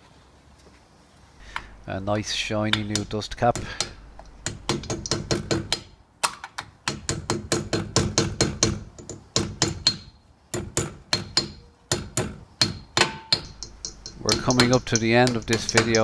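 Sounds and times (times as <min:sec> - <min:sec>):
mallet tapping metal cap: 0:02.7 - 0:05.9, 0:12.6 - 0:16.0.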